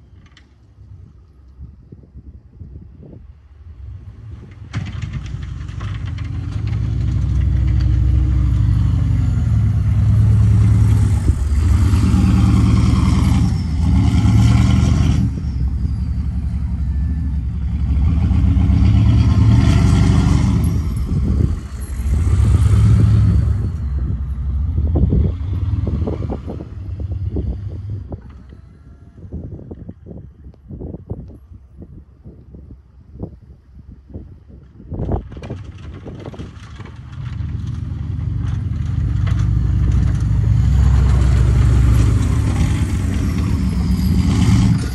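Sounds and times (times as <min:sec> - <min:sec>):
diesel truck engine revving: 0:03.9 - 0:28.3, 0:36.2 - 0:44.9.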